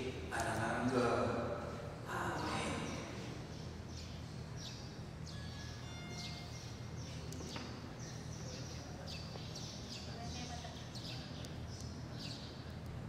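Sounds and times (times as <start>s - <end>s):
steady low hum: 0.0s - 13.0s
small birds chirping: 2.2s - 13.0s
whistled bird notes: 4.6s - 12.5s.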